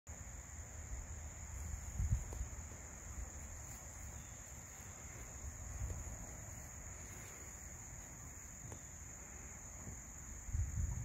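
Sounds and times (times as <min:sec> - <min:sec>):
high-pitched insect chorus: 0:00.1 - 0:11.0.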